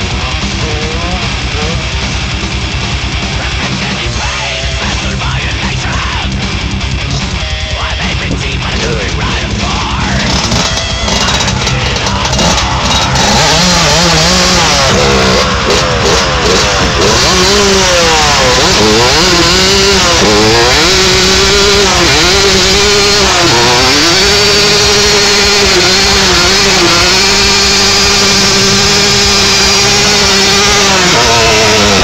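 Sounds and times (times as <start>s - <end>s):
dirt bike engine revving: 0.0s - 32.0s
tyre spinning on asphalt: 10.2s - 32.0s.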